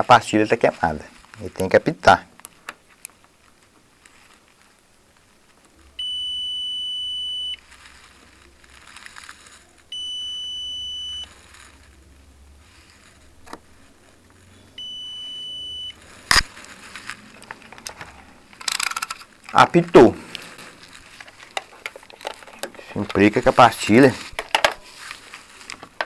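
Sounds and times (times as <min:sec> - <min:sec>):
multimeter continuity beeps: 0:06.0 - 0:07.6, 0:09.9 - 0:11.3, 0:14.7 - 0:16.4.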